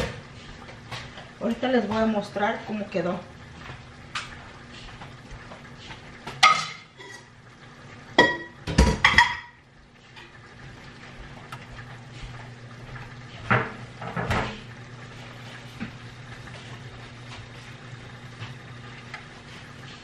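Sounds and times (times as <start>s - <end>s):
dishes and utensils clattering: 8.2s - 9.6s.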